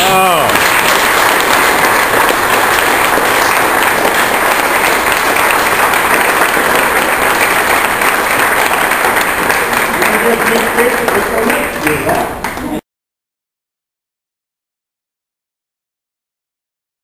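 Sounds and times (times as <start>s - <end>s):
indoor crowd applauding: 0.0s - 12.8s.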